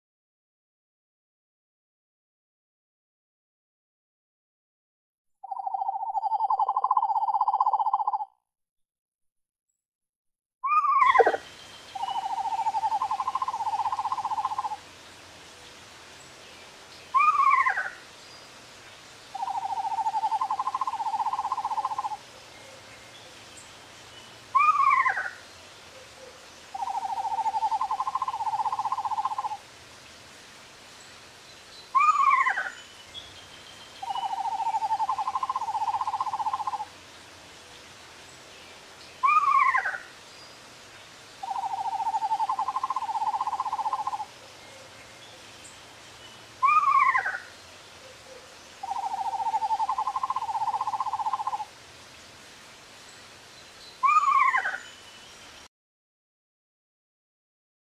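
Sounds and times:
owl trill: 5.4s - 8.3s, 10.6s - 14.8s, 17.1s - 18.0s, 19.4s - 22.2s, 24.5s - 25.4s, 26.2s - 29.6s, 32.0s - 32.8s, 34.0s - 36.9s, 39.2s - 40.1s, 41.4s - 44.9s, 46.6s - 47.5s, 48.3s - 51.7s, 54.0s - 54.9s
owl falling call: 10.6s - 11.4s, 17.2s - 18.0s, 32.0s - 32.7s, 46.6s - 47.5s, 54.0s - 54.8s.

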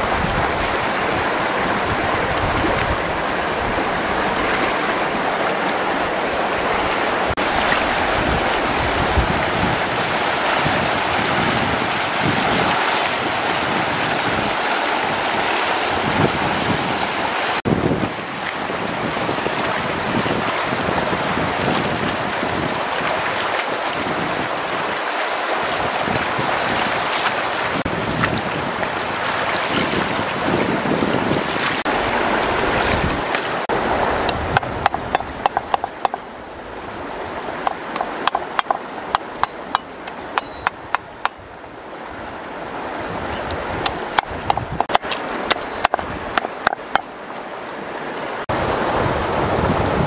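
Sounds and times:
river rushing: 0.0s - 50.0s
cleaver chopping on wooden block: 34.6s - 36.2s, 37.7s - 41.4s, 43.8s - 47.1s.

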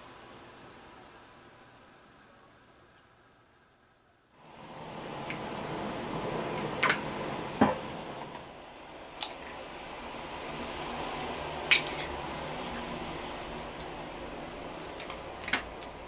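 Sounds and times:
steady background hiss: 0.0s - 16.0s
egg cracking against frying pan: 11.7s - 13.0s.

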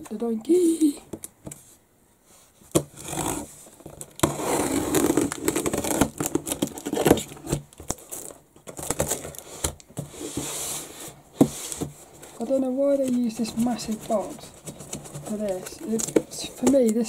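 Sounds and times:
cardboard flaps rustling: 2.7s - 17.0s
packing tape tearing: 3.0s - 9.8s.

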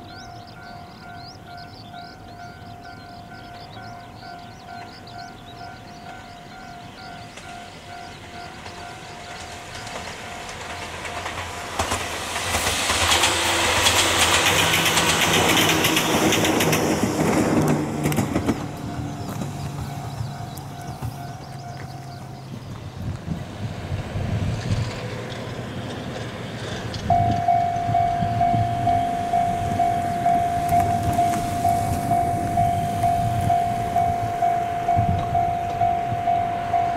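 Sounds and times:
bird chirps: 0.0s - 10.0s, 18.9s - 22.8s
crossing bell dinging: 0.0s - 12.1s, 18.4s - 22.5s, 27.0s - 36.9s
train motor hum: 0.6s - 36.9s
train wheels clattering over joints: 2.9s - 36.9s.

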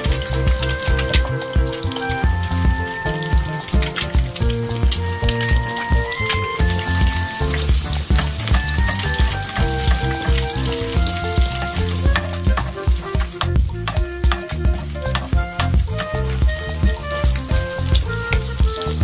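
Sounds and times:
background music with steady beat: 0.0s - 19.0s
eggs sizzling in oil: 0.0s - 19.0s
metal spoon stirring in pan: 5.8s - 16.4s.

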